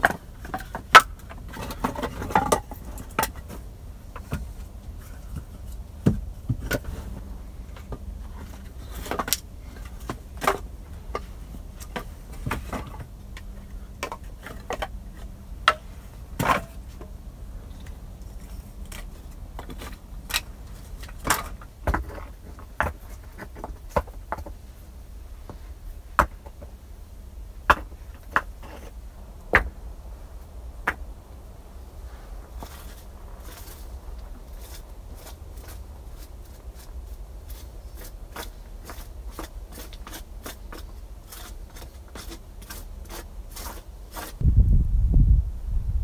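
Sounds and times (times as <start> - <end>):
firewood knocking together: 6.0 - 6.9.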